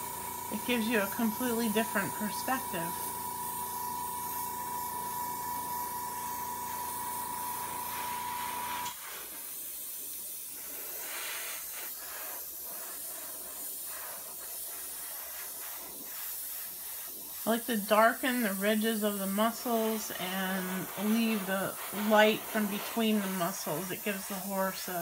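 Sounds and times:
mechanical hum with high whine: 0.0 - 9.0
airbrush hissing: 0.0 - 25.0.

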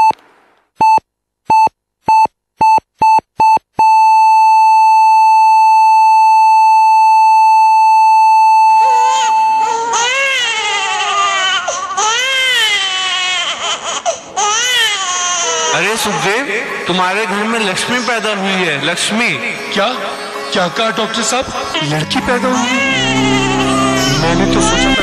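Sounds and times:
electronic monitor beeps: 0.8 - 9.8
newborn baby crying: 8.5 - 16.5, 21.6 - 25.0.

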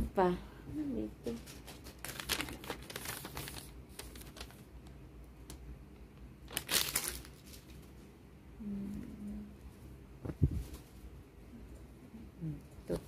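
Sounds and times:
paper rustling and crinkling: 1.3 - 4.7, 6.5 - 8.0.

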